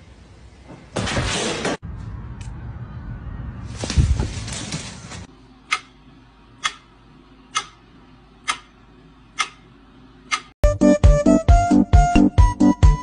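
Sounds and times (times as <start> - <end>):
sharp ticking clicks: 6.6 - 6.9, 7.5 - 7.8, 8.4 - 9.7.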